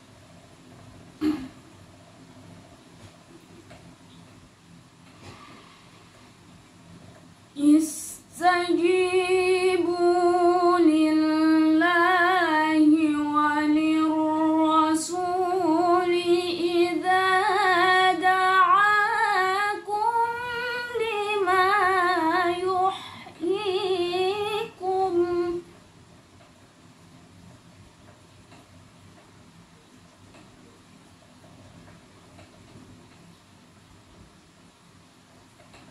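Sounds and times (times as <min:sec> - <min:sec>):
woman reciting melodically: 0:07.6 - 0:25.7.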